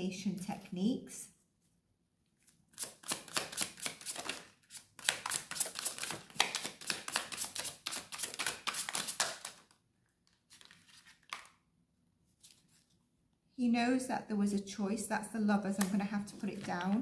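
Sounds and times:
cards being shuffled: 2.4 - 11.6, 15.8 - 17.0.

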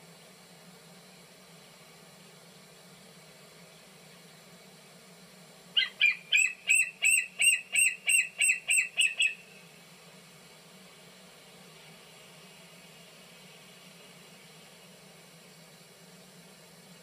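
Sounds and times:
young eagle piping calls: 5.8 - 9.5.

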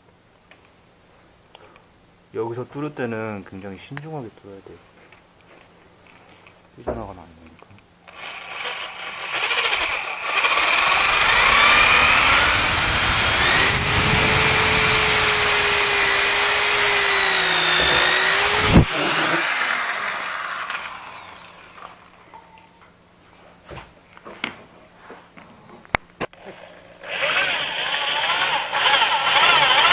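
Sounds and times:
electric drill whining: 8.1 - 22.0, 27.0 - 29.9.

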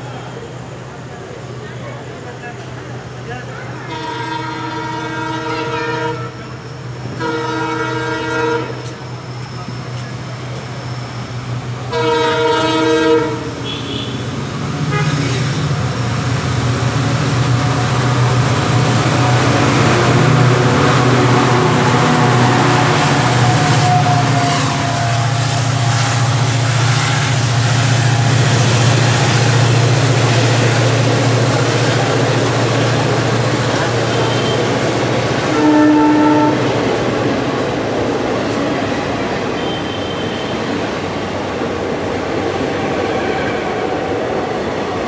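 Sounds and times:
locomotive engine drone: 0.0 - 45.0
train horn blast: 3.8 - 9.0, 11.9 - 14.3, 14.9 - 15.6, 19.0 - 30.7, 32.5 - 36.8, 39.6 - 40.7.

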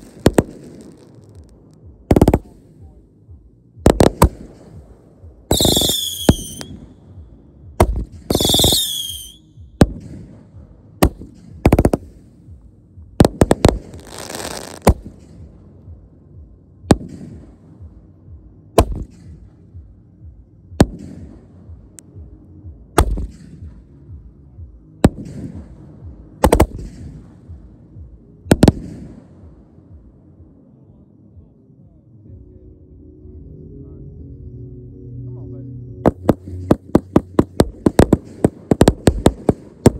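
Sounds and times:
fireworks bangs: 0.0 - 1.5, 36.1 - 39.9
firework whistles falling in pitch: 5.5 - 6.8, 8.3 - 9.5.

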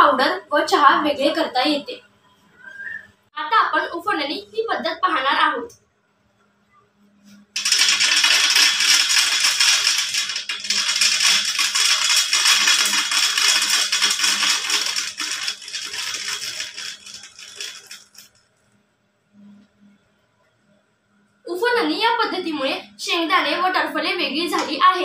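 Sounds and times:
peanuts rattling onto steel plate: 7.6 - 18.4.

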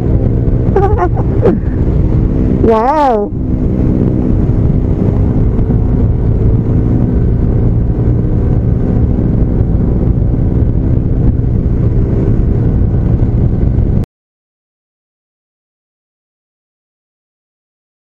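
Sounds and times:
motorcycle engine droning: 0.0 - 14.0.

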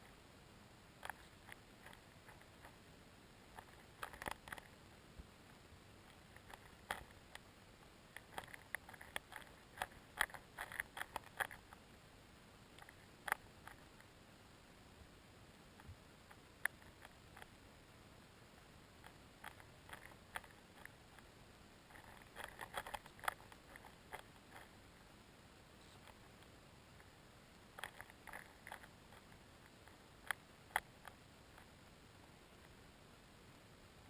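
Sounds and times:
low hiss: 0.0 - 34.0
underwater clicks and ticks: 3.5 - 4.7, 8.2 - 11.8, 21.9 - 24.7.

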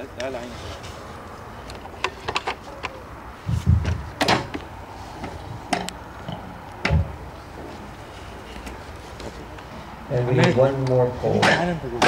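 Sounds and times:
wooden poles knocking and thumping: 3.5 - 4.6, 5.2 - 7.2.

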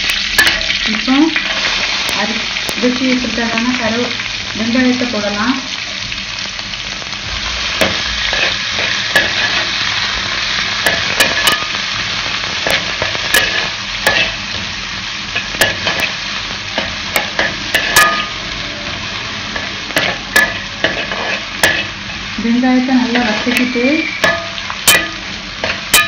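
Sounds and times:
vegetables sizzling in hot oil: 0.0 - 26.0
metal spoon scraping a pan: 7.8 - 9.8, 10.8 - 11.8, 12.6 - 14.5, 15.4 - 16.2, 16.8 - 18.4, 19.6 - 22.1, 23.0 - 26.0.

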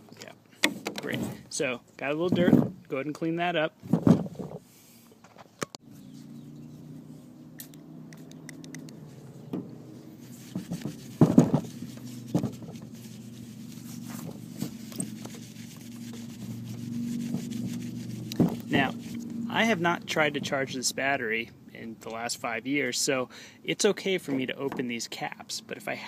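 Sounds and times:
steady low hum: 5.8 - 22.1
light knocks and scrapes: 8.2 - 19.3
cloth rubbing on plastic: 9.0 - 19.9.

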